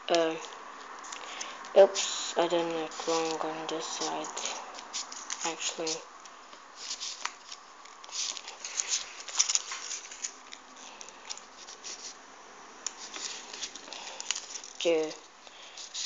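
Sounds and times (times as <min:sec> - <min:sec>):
paper rustling and crackling: 0:01.0 - 0:06.1, 0:06.8 - 0:12.2, 0:12.9 - 0:16.0.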